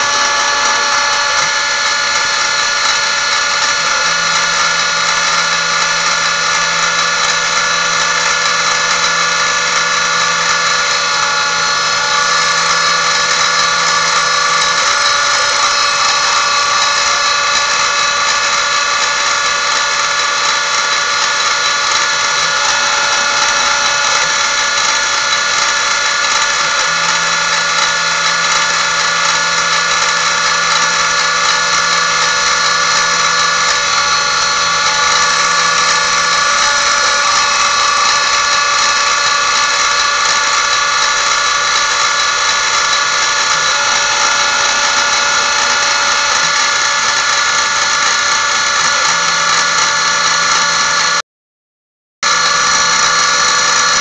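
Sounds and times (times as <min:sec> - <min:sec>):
milling machine motor whine: 0:00.0 - 0:51.2, 0:52.2 - 0:54.0.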